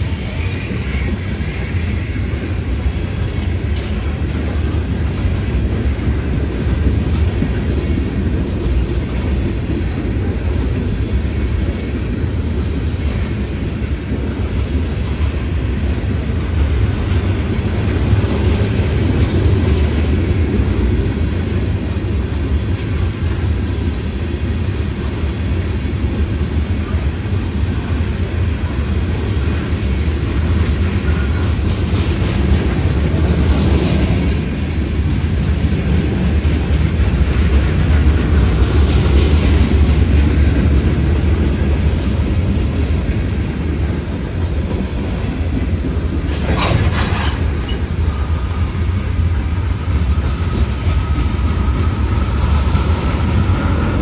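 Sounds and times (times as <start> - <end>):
freight train wheels rumbling: 0.0 - 54.0.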